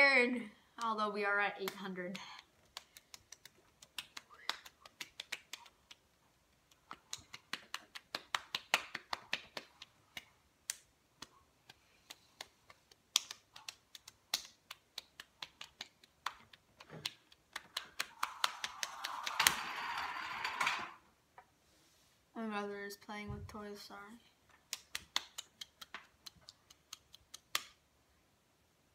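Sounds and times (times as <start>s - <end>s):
palms slapping cheeks: 1.6s - 19.4s, 24.6s - 27.8s.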